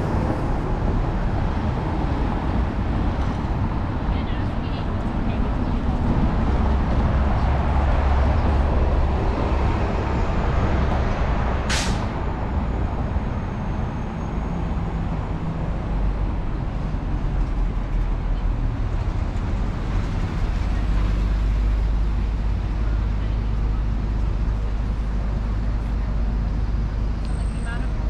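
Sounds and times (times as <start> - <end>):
street traffic rumble: 0.0 - 28.0
air brake hiss: 11.7 - 12.1.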